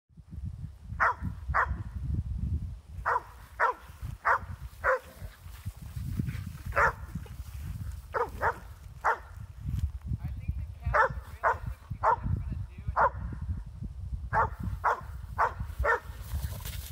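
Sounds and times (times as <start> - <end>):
dog barking: 1.0 - 1.8, 3.0 - 5.2, 6.7 - 7.1, 8.1 - 9.4, 10.9 - 12.3, 13.0 - 13.3, 14.3 - 16.1.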